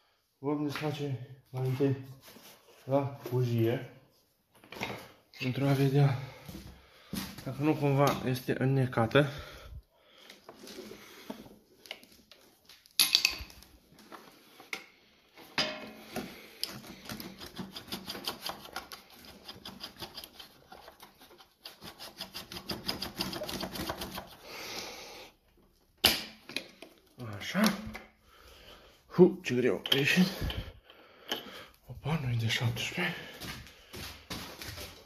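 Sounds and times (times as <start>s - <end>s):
tools knocking and scraping: 13.0s - 13.6s, 14.6s - 24.4s, 29.7s - 31.6s.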